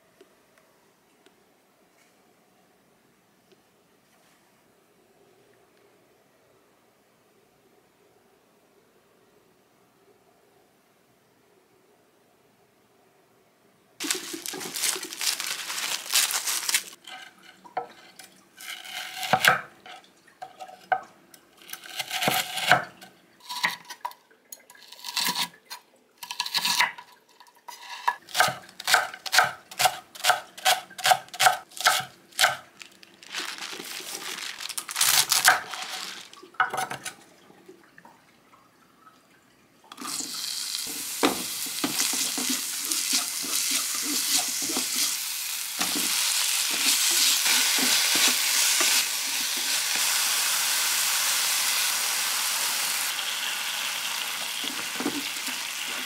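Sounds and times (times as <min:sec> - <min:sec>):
paper towel rustling: 0:14.0 - 0:17.1, 0:31.8 - 0:36.5
food sizzling in a frying pan: 0:40.0 - 0:56.0
spatula stirring in pan: 0:40.9 - 0:45.2, 0:45.8 - 0:50.0.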